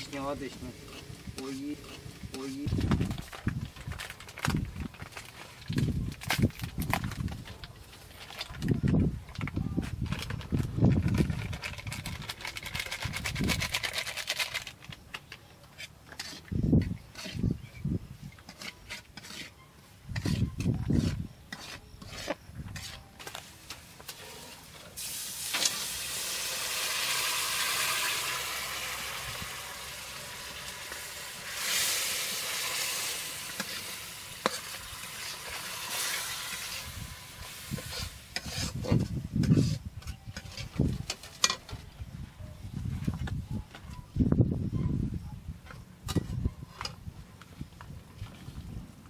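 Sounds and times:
metal spoon scraping a pan: 0.6s - 2.6s, 15.7s - 17.7s, 18.3s - 24.2s, 31.5s - 41.7s
food sizzling in oil: 25.0s - 38.8s.

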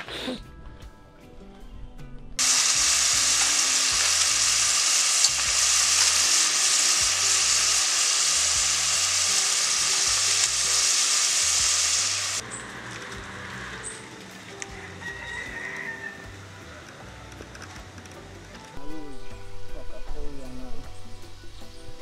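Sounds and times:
vegetables sizzling in hot oil: 2.4s - 12.4s.

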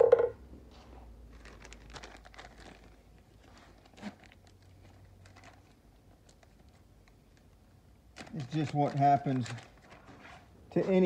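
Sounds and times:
package crinkling: 1.3s - 10.1s.

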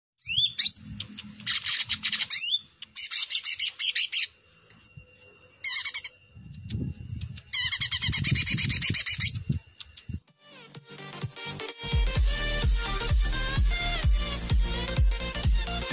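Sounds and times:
bird singing chattering notes: 0.2s - 4.4s, 5.6s - 10.2s.

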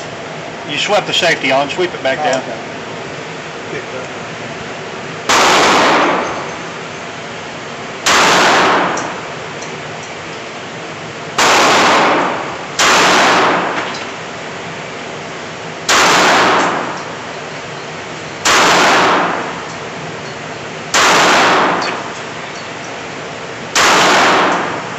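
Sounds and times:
pistol shots echoing indoors: 5.3s - 6.5s, 8.0s - 9.2s, 11.4s - 13.9s, 15.8s - 17.1s, 18.4s - 19.6s, 20.9s - 22.1s, 23.7s - 24.9s.

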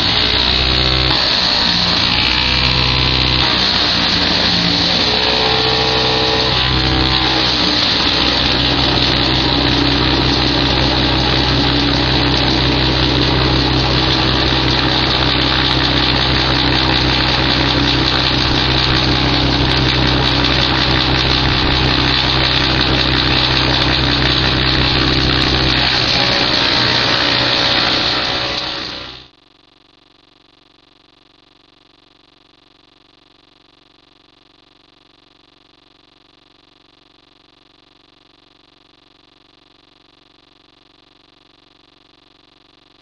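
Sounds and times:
tractor and branch chipper droning: 0.0s - 29.3s.

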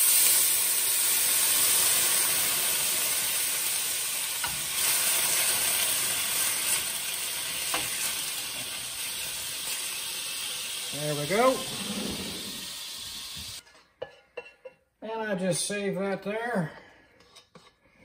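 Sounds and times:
frying pan sizzling: 0.0s - 13.6s.

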